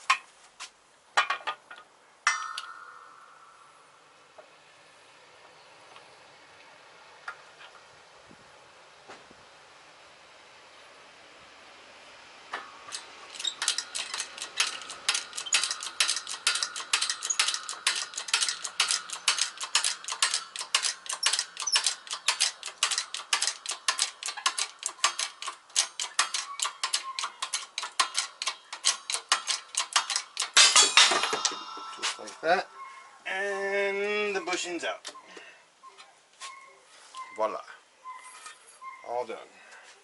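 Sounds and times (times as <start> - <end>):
metal clatter: 12.6 - 32.6
hydraulic jack pumping clicks: 12.9 - 30.6.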